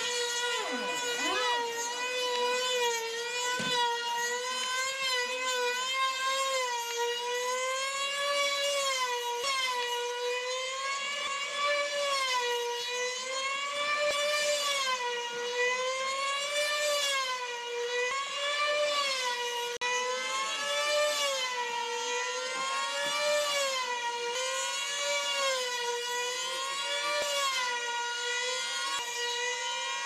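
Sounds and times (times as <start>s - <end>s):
model plane engines whining: 0.0s - 30.0s.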